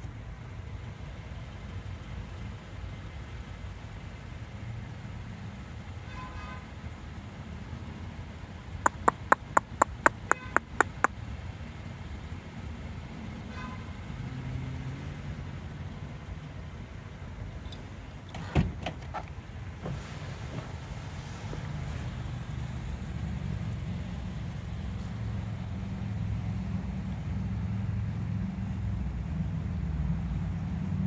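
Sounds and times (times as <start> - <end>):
distant road traffic rumble: 0.0 - 31.0
sharp clicks: 8.9 - 11.1.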